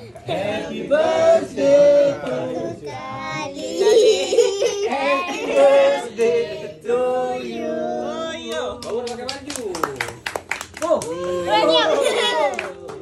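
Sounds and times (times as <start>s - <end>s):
group singing birthday song: 0.0s - 9.2s.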